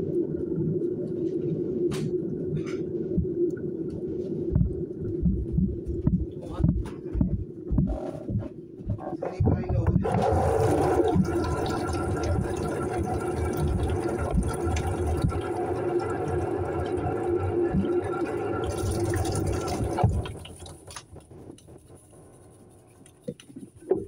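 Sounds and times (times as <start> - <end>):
tap water running into sink: 10.0 - 21.0
faint scratching: 21.3 - 24.0.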